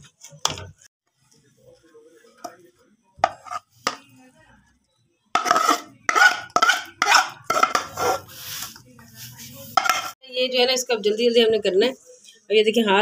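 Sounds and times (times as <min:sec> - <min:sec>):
spoon scraping in steel pan: 0:03.2 - 0:04.1, 0:05.4 - 0:08.8, 0:09.5 - 0:10.2.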